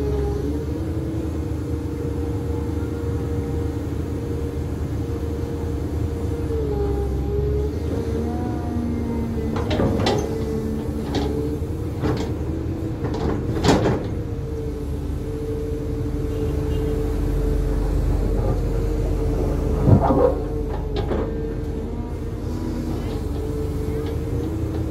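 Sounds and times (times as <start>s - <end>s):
excavator engine rumble: 0.0s - 24.9s.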